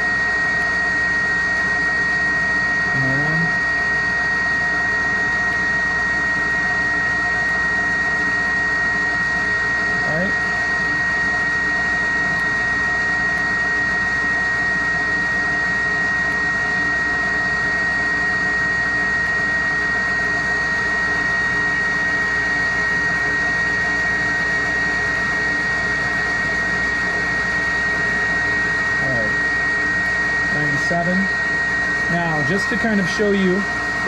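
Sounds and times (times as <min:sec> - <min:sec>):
vacuum pump humming with whine: 0:00.0 - 0:34.0
technician talking: 0:02.9 - 0:03.5, 0:10.0 - 0:10.4, 0:29.0 - 0:29.4, 0:30.5 - 0:31.4, 0:32.1 - 0:33.7.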